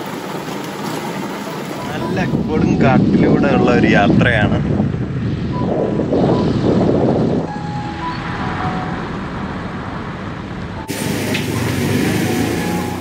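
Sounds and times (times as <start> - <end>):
road and tyre rumble: 0.0 - 13.0
car engine running: 10.2 - 13.0.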